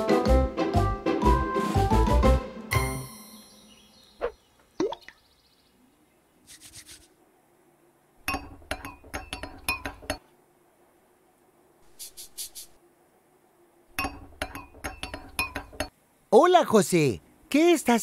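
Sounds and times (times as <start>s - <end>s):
spoon clinking in a glass: 14.0s - 15.9s.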